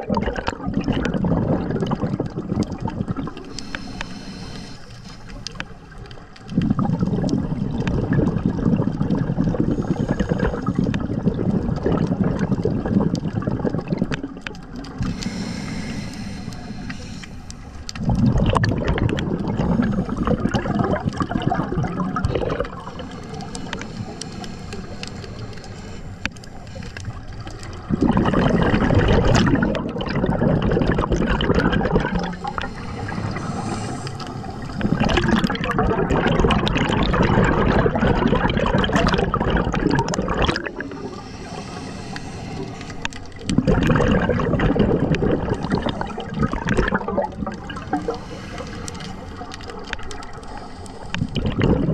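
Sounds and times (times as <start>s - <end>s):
regulator exhalation bubbling: 0.0s - 5.7s, 6.4s - 51.9s
regulator inhalations: 3.4s - 5.8s, 9.6s - 11.0s, 15.0s - 18.2s, 22.4s - 27.2s, 32.0s - 35.4s, 40.5s - 43.7s, 47.7s - 51.5s.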